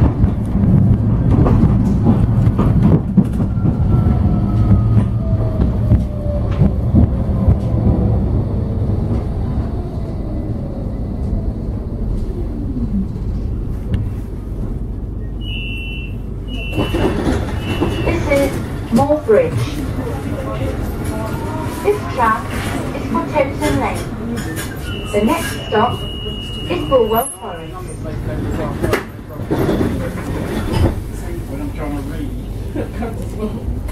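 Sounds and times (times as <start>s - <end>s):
tram low rumble: 0.0s - 33.9s
short high door beeps: 15.4s - 18.3s.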